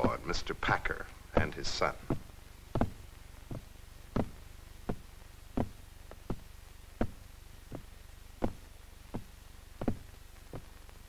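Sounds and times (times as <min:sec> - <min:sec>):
heavy thuds through ceiling: 0:00.0 - 0:11.0
steady low hum: 0:00.0 - 0:11.0.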